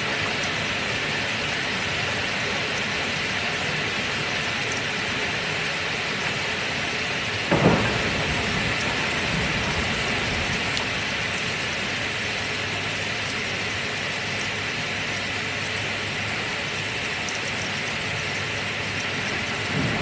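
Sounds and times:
heavy rain hissing: 0:00.0 - 0:20.0
thunder clap and rumble: 0:07.5 - 0:12.2, 0:19.0 - 0:20.0.

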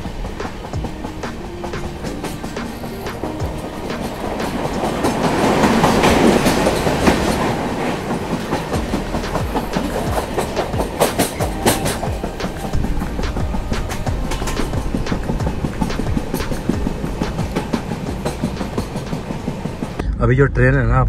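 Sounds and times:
wheels clacking over rail joints: 0:00.0 - 0:20.0
train wheel and track rumble: 0:00.0 - 0:20.6.

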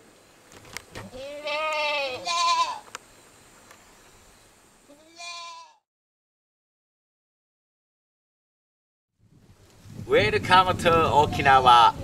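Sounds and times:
goat bleating: 0:01.0 - 0:02.9, 0:04.9 - 0:05.8.

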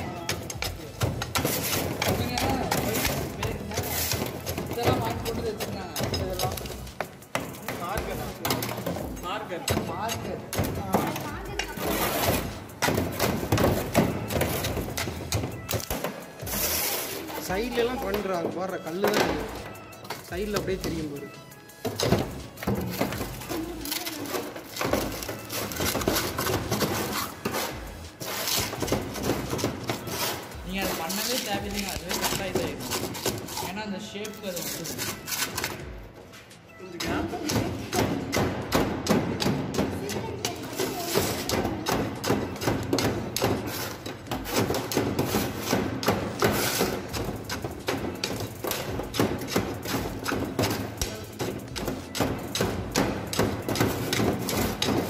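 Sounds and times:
trowel scraping wet concrete: 0:00.0 - 0:06.9, 0:16.4 - 0:17.5, 0:25.0 - 0:35.8, 0:43.6 - 0:47.6.

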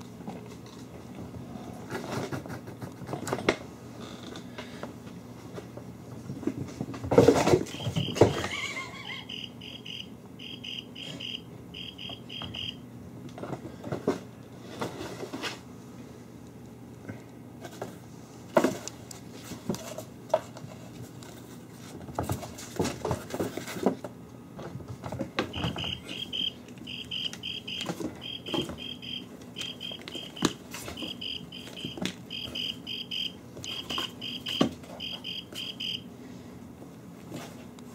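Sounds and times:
high chirping: 0:09.2 - 0:12.8, 0:25.5 - 0:36.0.

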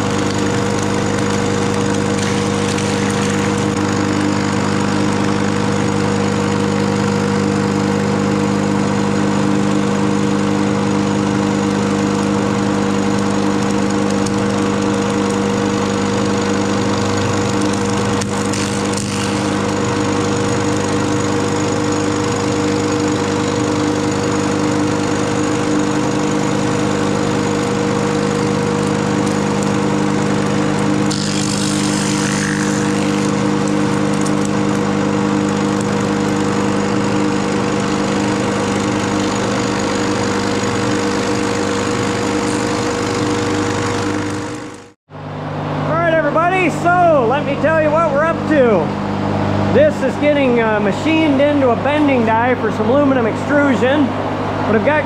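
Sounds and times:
wood being cut: 0:00.0 - 0:08.0, 0:17.2 - 0:21.7, 0:24.3 - 0:45.0
machine hum: 0:00.0 - 0:55.0.

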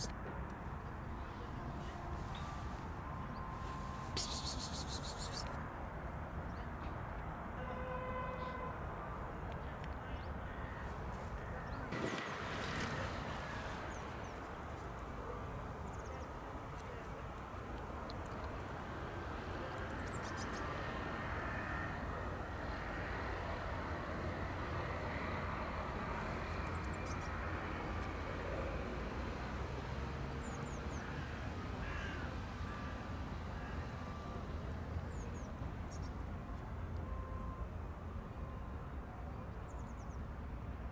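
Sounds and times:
distant traffic rumble: 0:00.0 - 0:40.9
faint high chirps: 0:02.4 - 0:05.6.

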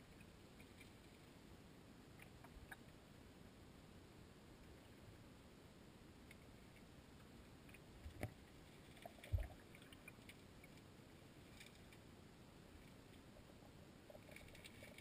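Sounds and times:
faint underwater clicks: 0:02.1 - 0:03.0, 0:06.2 - 0:12.1, 0:12.7 - 0:15.0.

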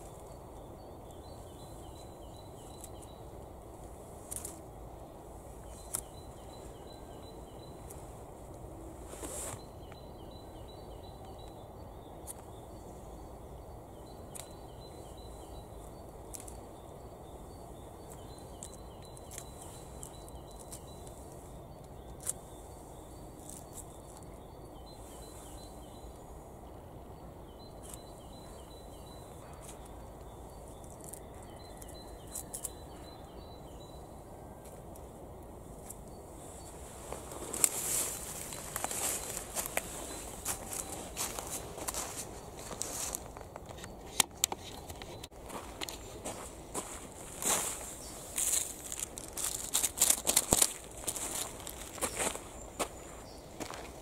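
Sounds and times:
dry leaves rustling: 0:36.5 - 0:43.4, 0:45.5 - 0:54.0.

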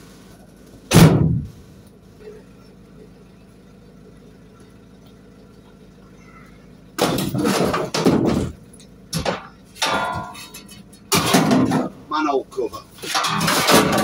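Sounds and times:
metal frame clattering and scraping: 0:07.0 - 0:08.6, 0:09.2 - 0:12.0, 0:12.8 - 0:14.0
metal clanks: 0:07.0 - 0:12.1, 0:12.8 - 0:14.0.

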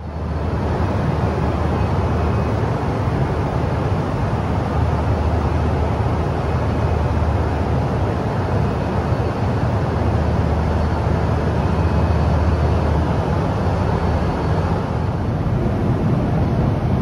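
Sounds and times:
airplane cabin engine rush: 0:00.0 - 0:17.0.

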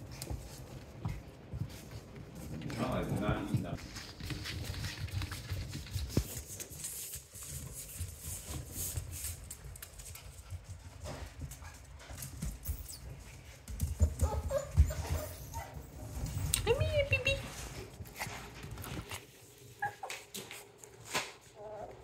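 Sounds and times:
puppy paws clicking on hard floor: 0:00.0 - 0:22.0
puppy pouncing thumps: 0:11.0 - 0:15.7.

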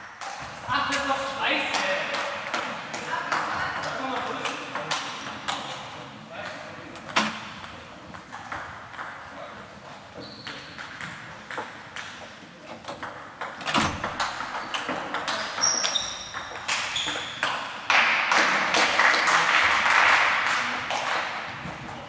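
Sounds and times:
table tennis balls clicking: 0:10.5 - 0:18.0.

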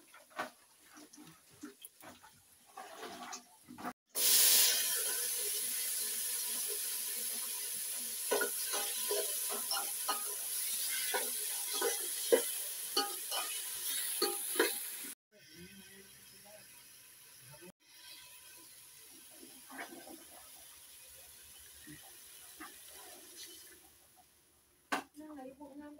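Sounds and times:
food sizzling in a pot: 0:04.1 - 0:24.4
spoon scraping a pot: 0:08.3 - 0:14.8.

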